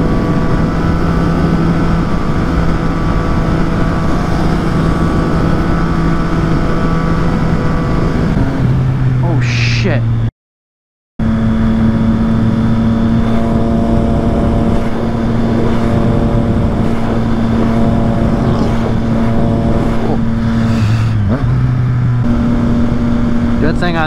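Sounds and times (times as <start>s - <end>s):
motorcycle engine cruising: 0.0s - 10.3s, 11.2s - 24.0s
wind noise: 11.9s - 23.6s.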